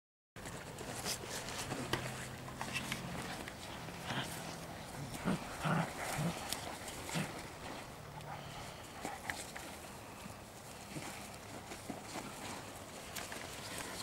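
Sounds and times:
puppies growling: 2.4 - 12.7.

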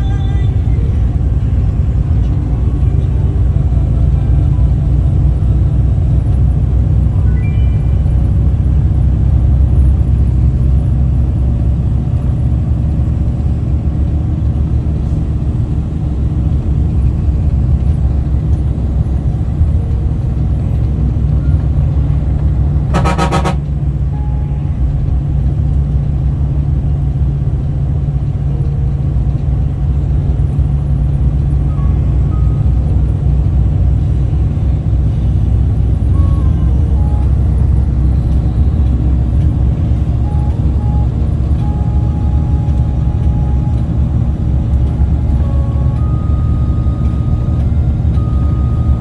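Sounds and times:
bus driving rumble: 0.0 - 49.0
loud horn honk: 22.8 - 24.6.

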